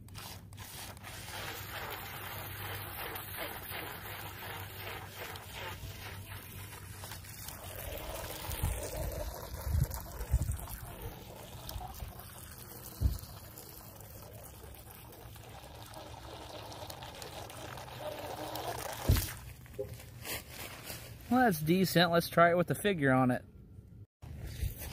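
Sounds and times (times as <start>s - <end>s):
water lapping at shoreline: 0.7s - 14.0s.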